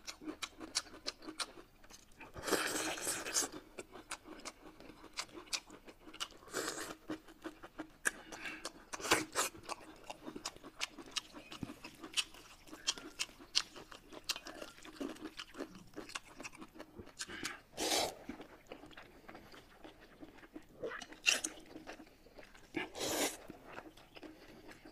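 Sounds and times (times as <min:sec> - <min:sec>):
chewing crisp food: 0:00.0 - 0:24.9
slurping noodles: 0:17.7 - 0:18.4, 0:22.8 - 0:23.5.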